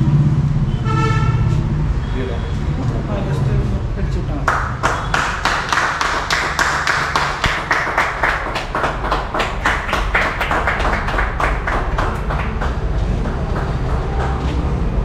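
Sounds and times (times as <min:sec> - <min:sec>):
people clapping: 0:04.4 - 0:15.0.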